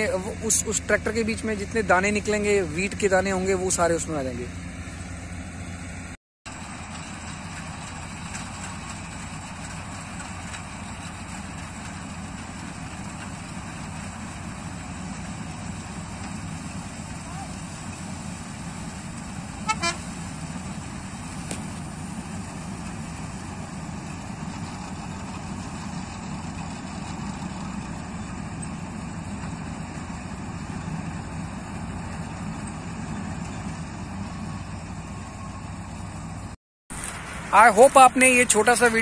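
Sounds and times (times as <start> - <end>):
combine harvester engine droning: 0.0 - 39.0
horn toots: 19.6 - 20.2.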